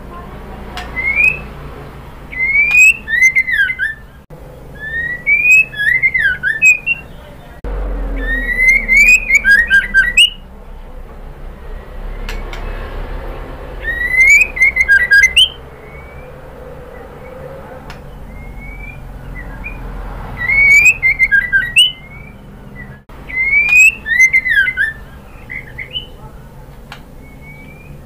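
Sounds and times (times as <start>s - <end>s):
bird whistling calls: 0.8s - 1.5s, 2.3s - 10.4s, 13.8s - 26.3s, 27.2s - 28.0s
bird clicking notes: 2.3s - 4.0s.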